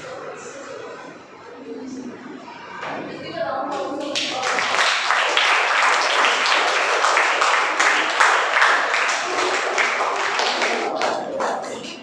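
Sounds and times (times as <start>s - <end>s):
children applauding: 4.1s - 12.0s.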